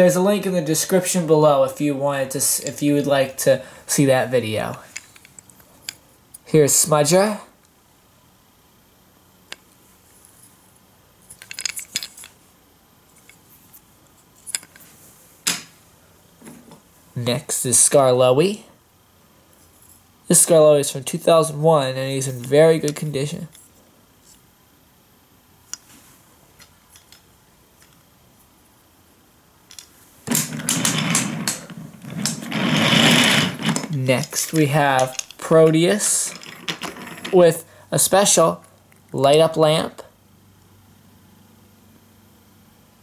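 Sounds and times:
wooden toy clicking and clattering: 0:11.3 - 0:12.3, 0:29.7 - 0:37.4.

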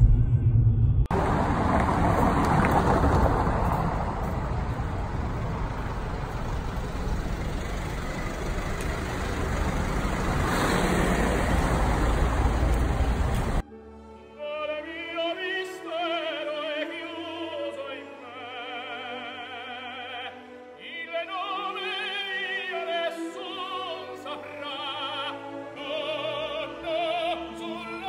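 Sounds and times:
street traffic rumble: 0:01.1 - 0:13.6.

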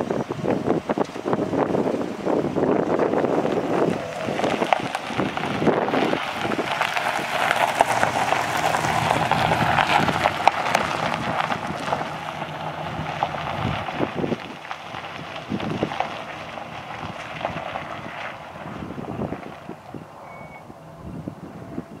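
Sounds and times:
engine idling: 0:00.0 - 0:22.0
wind buffeting microphone: 0:00.0 - 0:22.0.

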